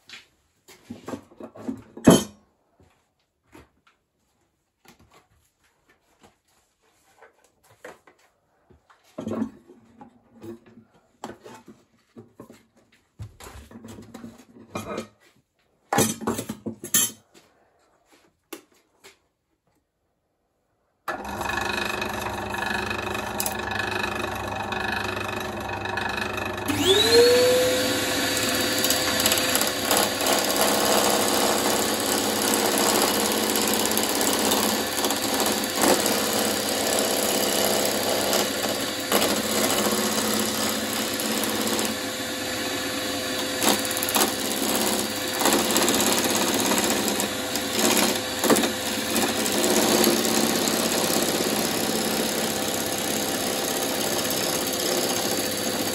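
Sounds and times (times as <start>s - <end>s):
woodworking machine motor whine: 21.1s - 55.9s.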